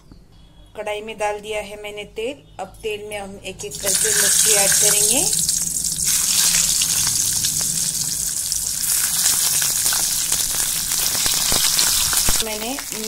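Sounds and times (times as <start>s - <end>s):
chillies sizzling in hot oil: 3.7s - 13.0s
oil crackles and pops: 3.8s - 13.0s.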